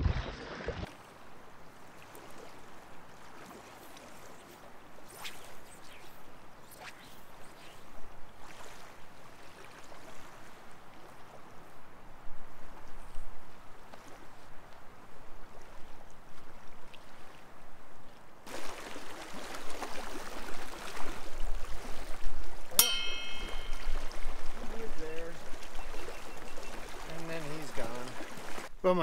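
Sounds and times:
small waves lapping at shore: 0.0 - 29.0
brief ringing ping: 22.8 - 24.2.

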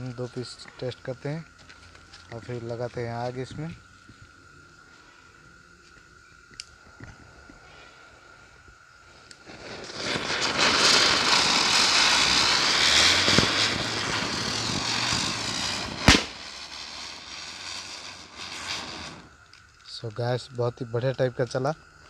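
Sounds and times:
fireworks hissing: 0.0 - 20.4
sharp crack: 9.2 - 19.9.

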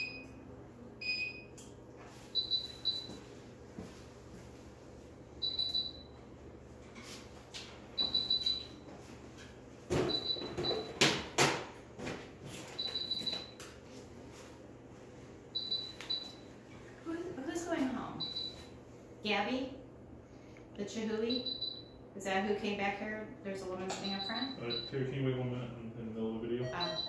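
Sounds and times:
medical alarm beeping: 0.0 - 0.4, 1.0 - 1.5, 2.3 - 3.3, 5.4 - 6.2, 8.0 - 8.9, 10.0 - 11.0, 12.7 - 13.6, 15.5 - 16.5, 18.2 - 18.7, 21.2 - 22.0, 23.9 - 25.1, 26.6 - 27.0.

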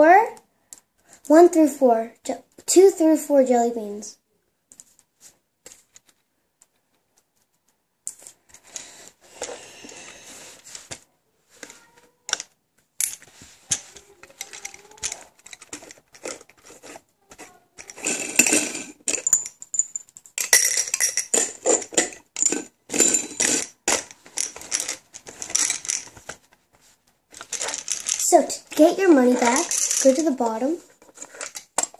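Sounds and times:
candy dispenser rattling: 13.8 - 26.3, 27.4 - 31.9.

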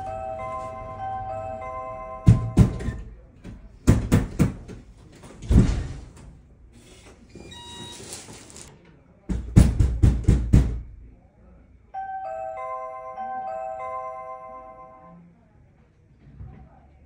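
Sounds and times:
electronic doorbell chime: 0.0 - 3.0, 12.0 - 15.3
knocking on a door: 2.2 - 4.9, 9.3 - 10.9
door thud: 2.2 - 6.3.

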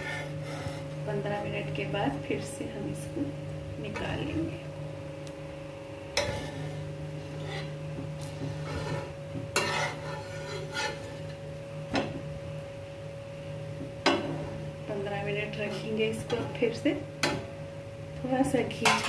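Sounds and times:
spatula scraping on griddle: 0.0 - 1.0, 6.2 - 11.4, 18.8 - 19.0
steady hum: 0.0 - 19.0.

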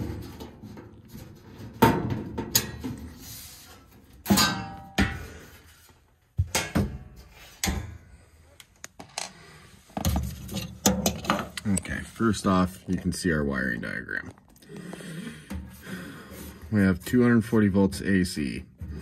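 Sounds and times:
metal knocks and clanks: 0.0 - 3.2, 4.2 - 5.6, 6.3 - 8.1, 10.0 - 12.0.

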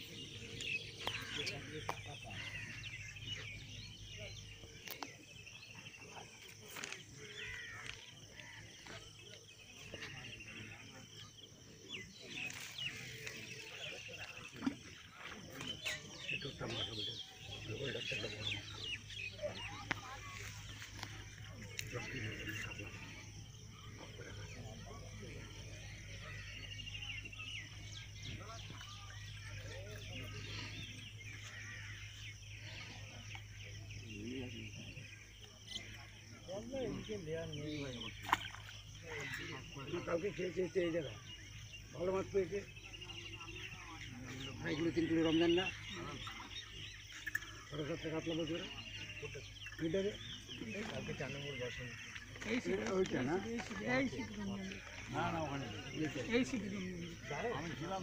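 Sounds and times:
insects trilling: 0.0 - 58.0
small birds chirping: 0.0 - 58.0.

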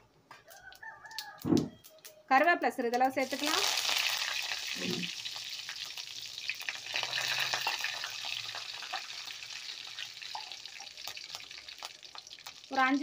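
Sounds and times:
small crackling pops: 0.3 - 2.3, 10.2 - 13.0
curry leaves sizzling in hot oil: 3.0 - 13.0.

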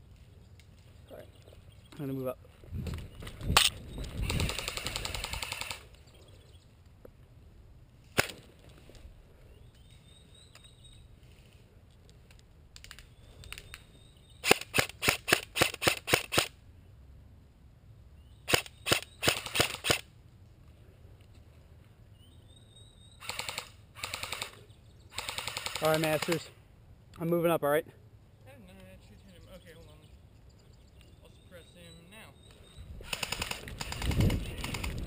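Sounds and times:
airsoft rifle firing: 3.6 - 5.8, 8.2 - 8.5, 14.4 - 16.5, 18.5 - 20.1, 23.2 - 24.6, 25.2 - 26.5, 33.0 - 35.0.

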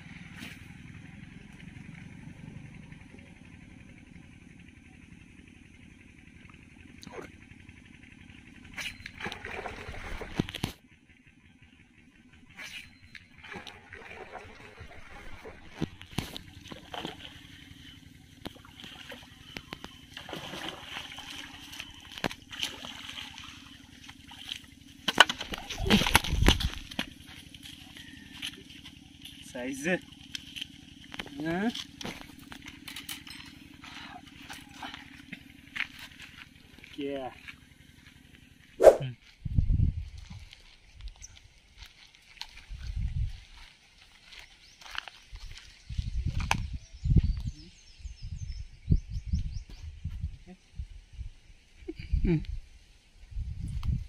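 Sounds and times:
small engine running: 0.0 - 39.4
fish splashing in water: 9.0 - 10.8, 13.4 - 28.2
fish slapping: 18.5 - 27.8.

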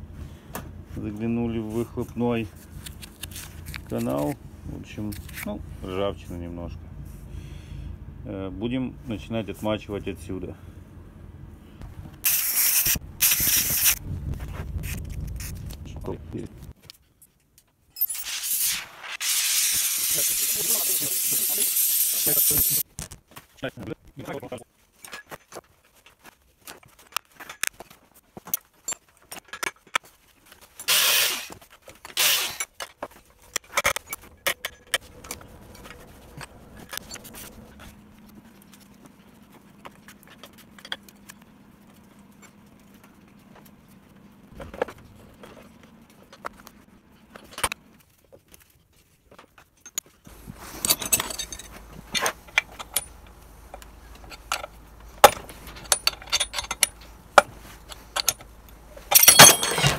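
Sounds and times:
metal parts clinking and knocking: 27.2 - 37.5, 49.5 - 59.9
metal scraping: 50.3 - 59.9.

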